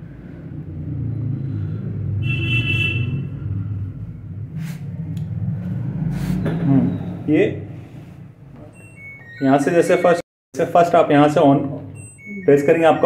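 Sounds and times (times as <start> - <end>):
high electronic beep: 8.7 - 10.2, 11.9 - 13.0.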